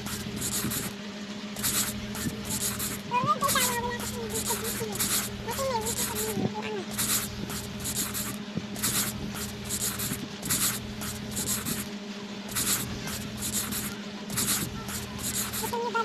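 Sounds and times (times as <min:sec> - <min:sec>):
crayon colouring on paper: 0:00.0 - 0:00.9, 0:01.6 - 0:11.9, 0:12.5 - 0:15.8
steady low hum: 0:00.0 - 0:16.0.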